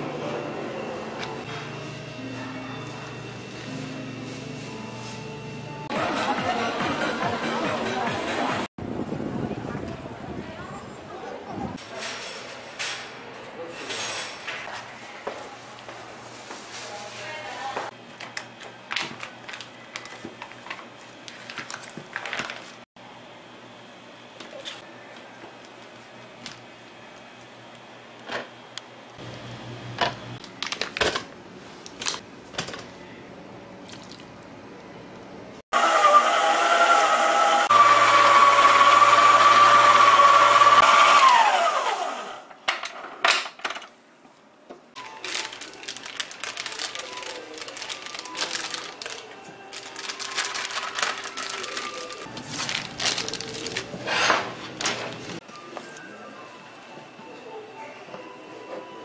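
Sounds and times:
plastic bag crinkling: 18.9s - 22.8s, 45.0s - 55.4s
electric hand mixer: 35.7s - 42.4s.

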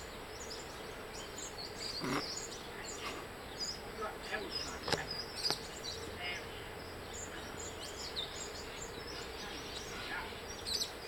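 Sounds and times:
faint bird chirps: 0.0s - 11.0s
outdoor background noise: 0.0s - 11.0s.

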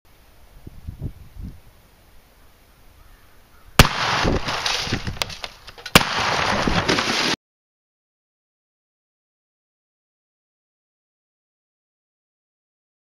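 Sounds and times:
shotgun blasts: 3.8s - 5.2s, 5.9s - 7.2s
monitor shattering: 4.3s - 7.4s.

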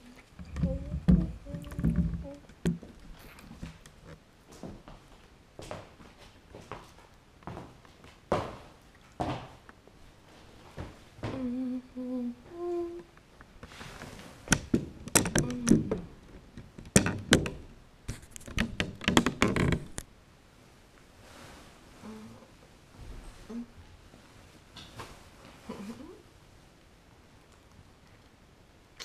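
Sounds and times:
woman humming: 0.0s - 2.5s, 11.2s - 13.1s, 15.4s - 15.9s, 22.0s - 22.6s, 23.4s - 23.8s, 25.7s - 26.2s
sharp clicks and knocks: 0.4s - 4.2s, 14.5s - 20.1s.

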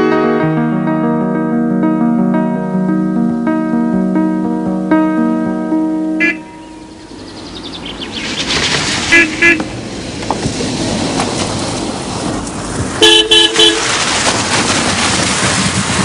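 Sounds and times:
car driving: 6.0s - 16.0s
car horn tooting: 6.2s - 6.6s, 9.1s - 9.7s, 13.0s - 14.0s.

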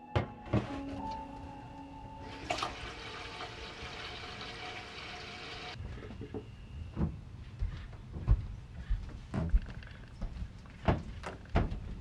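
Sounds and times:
faucet water running into pot: 2.2s - 5.8s.

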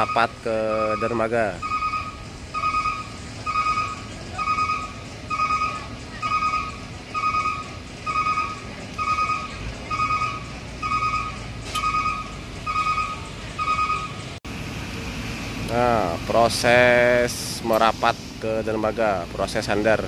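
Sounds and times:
electronic warning beeper: 0.0s - 14.3s.

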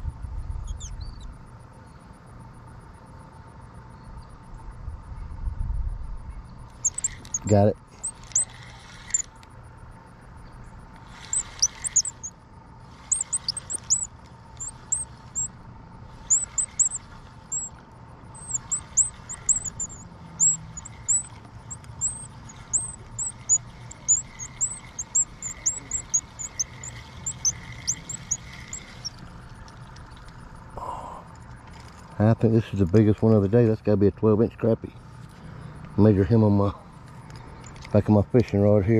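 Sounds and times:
small birds chirping: 0.5s - 2.1s, 6.4s - 9.4s, 10.3s - 31.1s.

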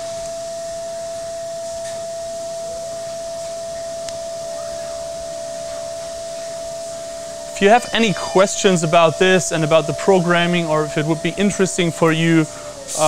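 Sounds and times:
milling machine spindle whining: 0.0s - 13.0s
spray mist hissing: 7.6s - 13.0s.

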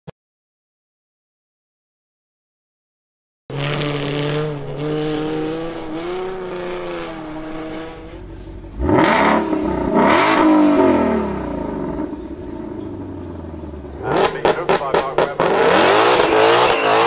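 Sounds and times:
car engine revving: 3.5s - 17.0s.

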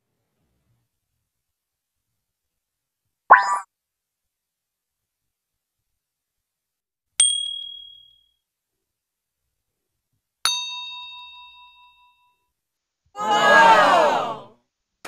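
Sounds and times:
downward sliding sound effect: 3.3s - 3.6s.

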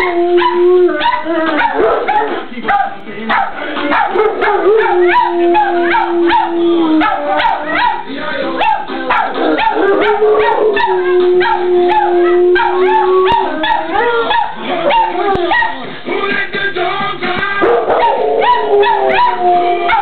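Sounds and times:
dogs howling and yipping: 0.0s - 15.8s, 17.6s - 20.0s
background song: 0.0s - 20.0s.

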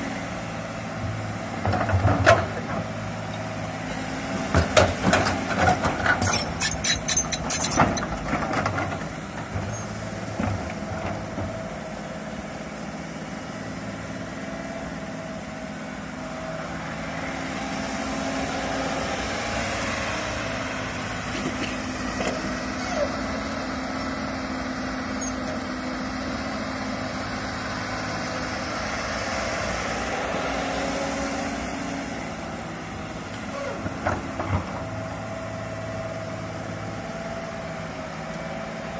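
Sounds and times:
excavator diesel engine running: 0.0s - 38.9s
metallic clanks and rattles: 5.0s - 9.0s.

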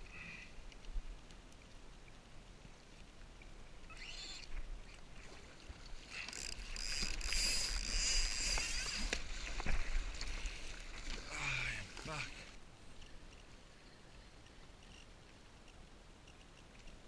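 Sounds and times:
paddle splashing in water: 4.5s - 12.6s.

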